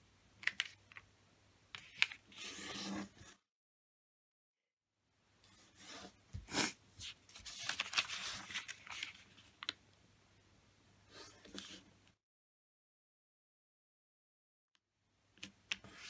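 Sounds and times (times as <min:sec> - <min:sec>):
paper crinkles: 0:07.0 - 0:09.8
paper rustling: 0:07.0 - 0:09.8.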